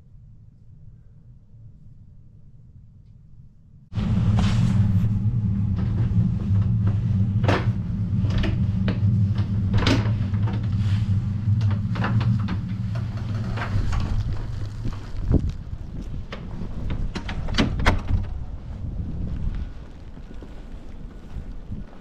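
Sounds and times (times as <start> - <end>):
steady low rumble: 0.0 - 22.0
door clicks and knocks: 16.9 - 18.4.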